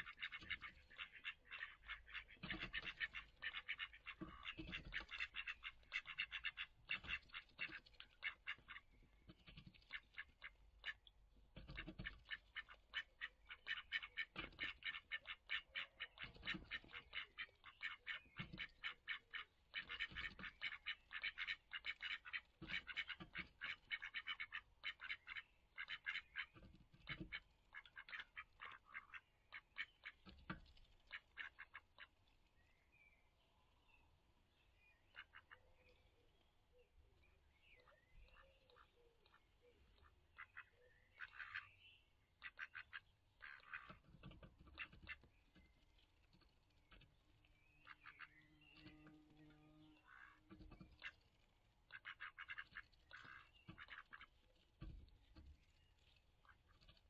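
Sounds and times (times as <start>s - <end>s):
duck bill clicks and smacks: 2.1s - 25.2s, 30.0s - 31.9s.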